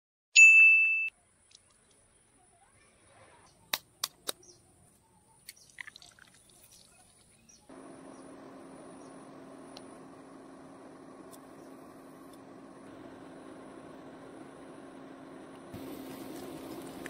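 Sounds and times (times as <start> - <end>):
low hum: 7.7 - 17.0.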